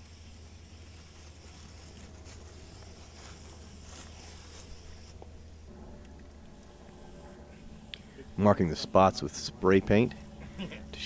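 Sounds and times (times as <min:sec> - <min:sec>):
aerosol spray hissing: 0:00.0 - 0:05.3.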